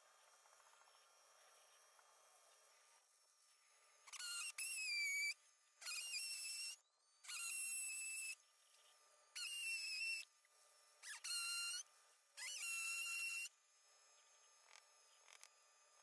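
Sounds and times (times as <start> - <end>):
cordless drill drilling into wall: 4.2 - 8.4, 11.0 - 13.6.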